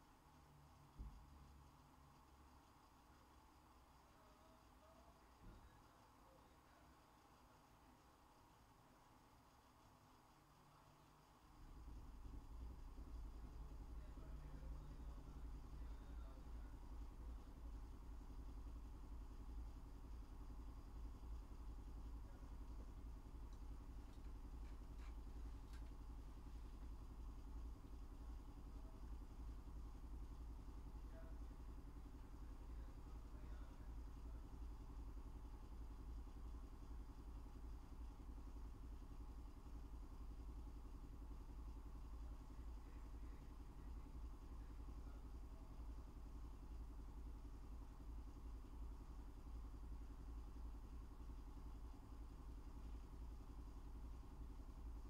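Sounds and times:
faint low hum: 0.0 - 55.0
faint clicks: 23.5 - 26.0.

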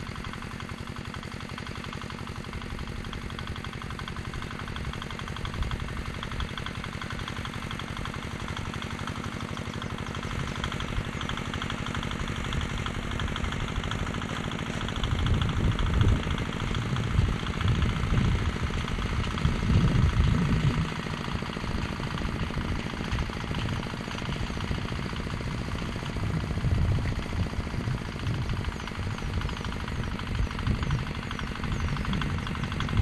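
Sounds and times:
small tractor engine chugging: 0.0 - 33.0
heavy low rumble: 15.1 - 21.0, 24.9 - 33.0.

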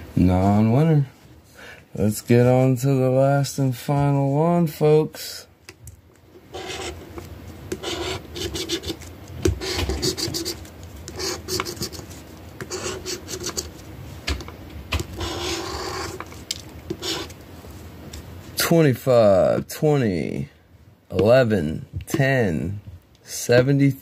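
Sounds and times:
scraping lottery ticket coating: 15.2 - 16.2.

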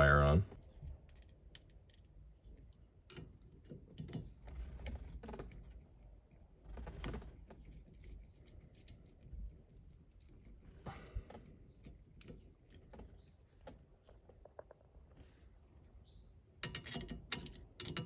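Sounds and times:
screwdriver metal clicks and scrapes: 16.6 - 18.0.

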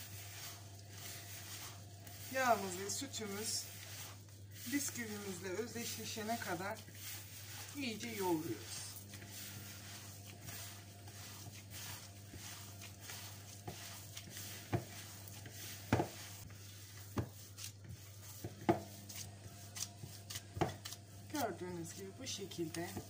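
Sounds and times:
low steady hum: 0.0 - 23.0
soft squishing of kneaded mixture: 0.0 - 23.0.

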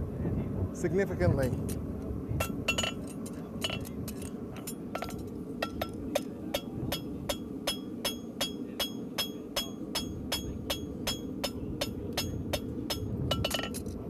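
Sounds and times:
hammer striking horseshoe on anvil: 3.6 - 13.9.

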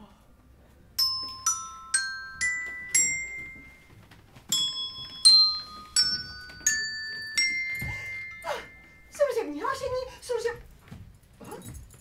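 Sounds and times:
bell-like percussion notes: 1.0 - 9.4.

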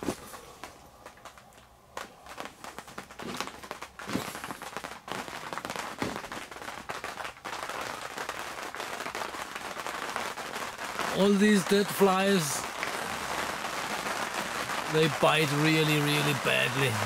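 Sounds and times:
plastic sheet crinkling: 0.0 - 9.8.

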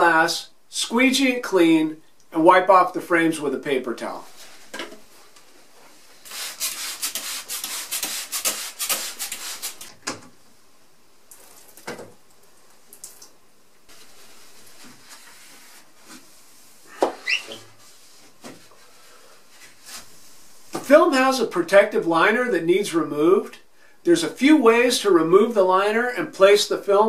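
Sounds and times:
spray bottle squirts: 6.3 - 9.9
squeegee rubbing on glass: 16.4 - 18.2
short rising squeak: 17.2 - 17.7.

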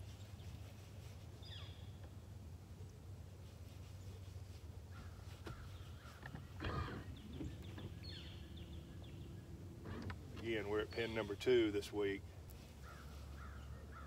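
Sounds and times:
low steady hum: 0.0 - 14.0
bird calls: 1.4 - 2.1, 4.9 - 11.7, 12.6 - 14.0.

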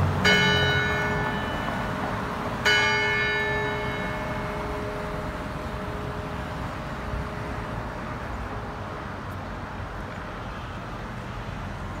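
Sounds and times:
street traffic rumble: 0.0 - 12.0
clock bell hum: 0.2 - 8.0.

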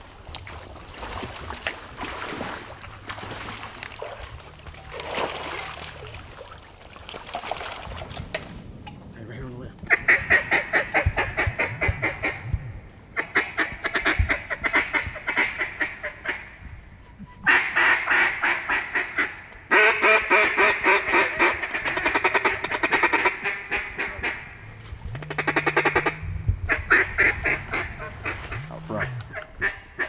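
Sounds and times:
wooden duck call chatter: 17.4 - 24.5, 25.1 - 30.0.

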